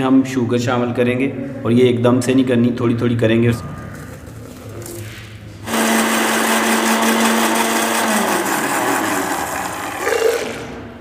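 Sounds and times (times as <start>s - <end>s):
blender motor running: 5.6s - 10.8s.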